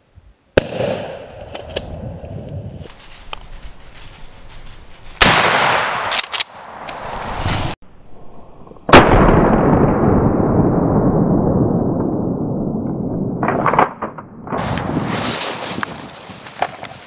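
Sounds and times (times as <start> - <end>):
shotgun shot: 0.6 - 1.9, 5.2 - 6.3.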